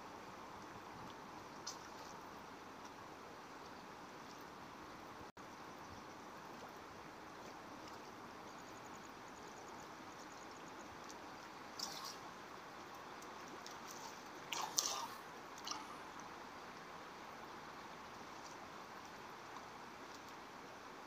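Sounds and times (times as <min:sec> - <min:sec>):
river water flowing: 0:00.0 - 0:21.0
water splashing: 0:11.0 - 0:16.4.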